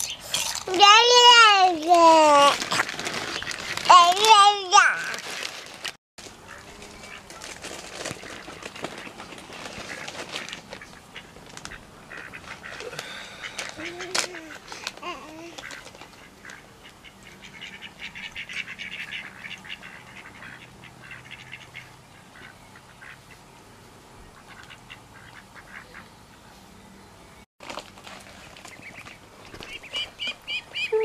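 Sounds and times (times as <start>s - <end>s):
ducks calling: 6.4s - 14.8s, 15.6s - 23.5s, 24.2s - 26.6s, 28.7s - 31.0s.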